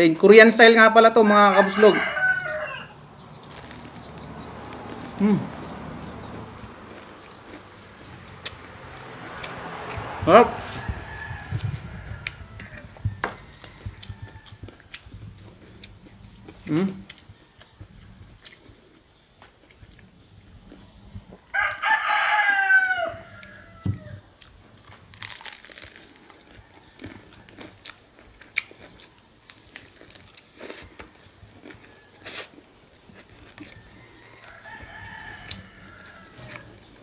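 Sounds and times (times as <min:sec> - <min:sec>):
rooster crowing: 0:01.0 - 0:03.2, 0:09.0 - 0:14.9, 0:21.5 - 0:24.3, 0:30.9 - 0:32.4, 0:33.6 - 0:37.0
chewing fried chicken: 0:03.2 - 0:10.0, 0:13.5 - 0:22.4, 0:24.3 - 0:37.0.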